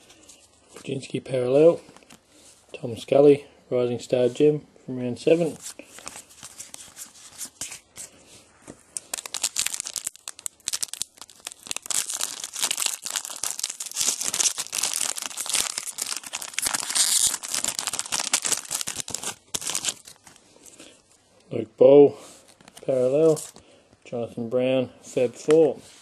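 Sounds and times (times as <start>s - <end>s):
wrapper crinkling and tearing: 9.0s - 20.8s.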